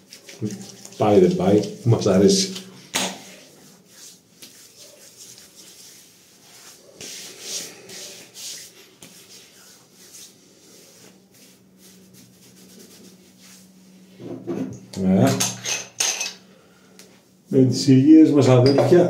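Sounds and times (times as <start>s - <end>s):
hands rubbing skin: 0.0s - 14.2s.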